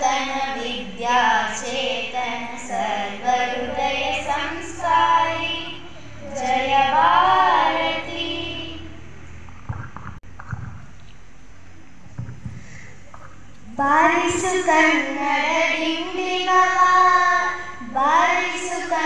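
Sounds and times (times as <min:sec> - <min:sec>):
girls singing into a microphone: 0:00.0 - 0:09.1, 0:13.7 - 0:19.0.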